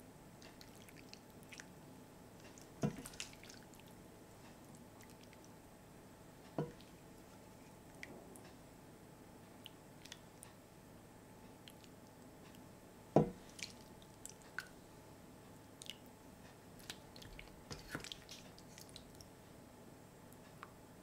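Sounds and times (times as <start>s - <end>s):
stew squishing and dripping: 0.4s - 1.7s, 2.4s - 5.6s, 13.3s - 14.8s, 16.8s - 19.3s
dull knock: 13.2s - 13.4s.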